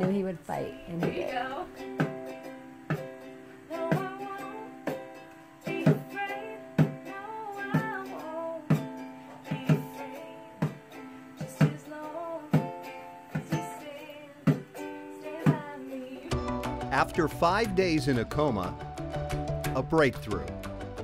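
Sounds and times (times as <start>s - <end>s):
ukulele strumming: 0.0s - 20.8s
person singing: 3.6s - 18.7s.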